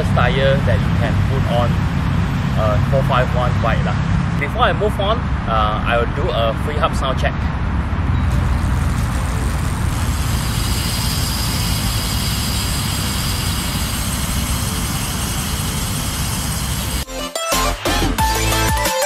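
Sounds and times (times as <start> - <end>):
bicycle freehub ticking: 8.2 - 17.1.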